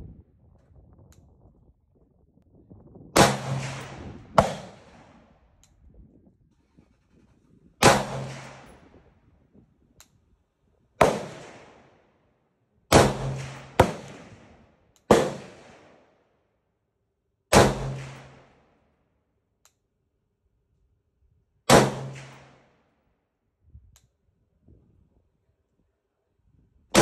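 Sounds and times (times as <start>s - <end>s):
rifle shots echoing: 3.2s - 5.4s, 7.8s - 8.9s, 11.0s - 12.0s, 12.9s - 16.1s, 17.5s - 18.6s, 21.7s - 22.6s.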